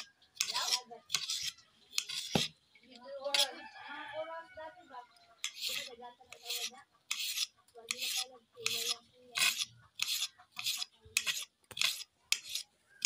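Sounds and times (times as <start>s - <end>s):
knife slicing tomato on plate: 0.4s - 2.6s, 5.4s - 12.7s.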